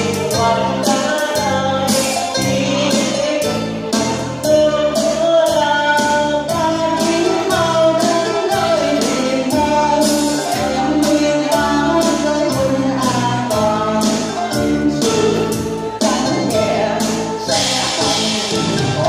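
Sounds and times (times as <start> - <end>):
instrumental accompaniment: 0.0 - 19.0
steady percussion beat: 0.0 - 19.0
person singing opera: 4.4 - 19.0.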